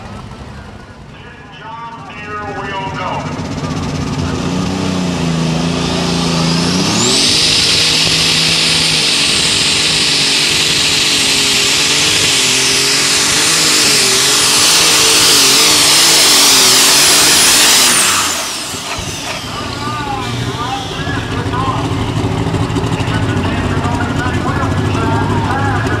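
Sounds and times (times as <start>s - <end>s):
tractor engine revving: 0.0s - 26.0s
turbocharger whine: 0.0s - 26.0s.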